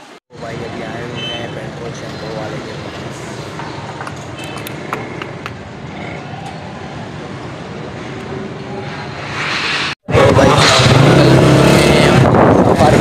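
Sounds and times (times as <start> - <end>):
street traffic: 0.0 - 13.0.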